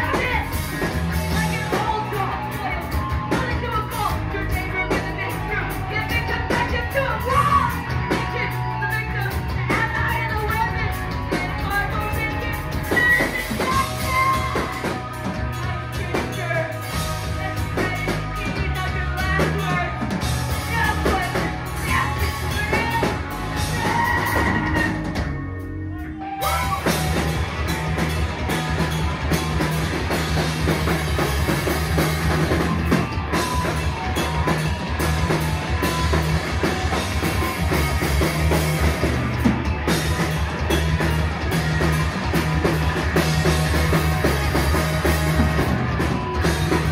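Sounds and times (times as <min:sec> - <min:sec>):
bass guitar: 0:00.0 - 0:46.9
distorted electric guitars: 0:00.0 - 0:46.9
drum kit: 0:00.0 - 0:46.9.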